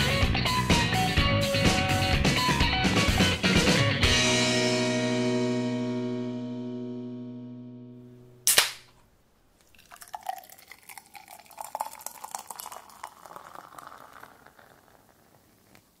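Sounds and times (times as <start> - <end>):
beer can opening pop and hiss: 8.4 - 9.0
beer pouring into glass: 9.6 - 16.0.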